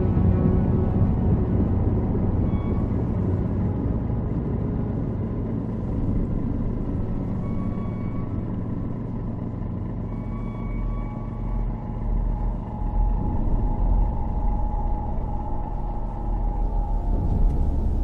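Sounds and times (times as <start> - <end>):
boat engine rumbling: 0.0 - 18.0.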